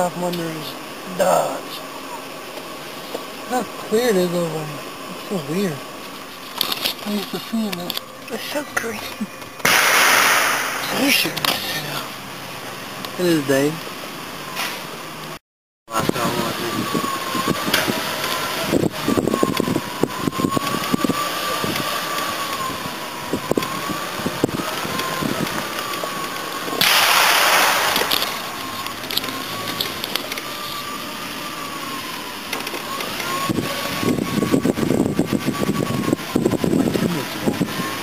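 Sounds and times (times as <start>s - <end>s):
loud hiss burst: 9.6s - 11.2s, 26.8s - 28.6s.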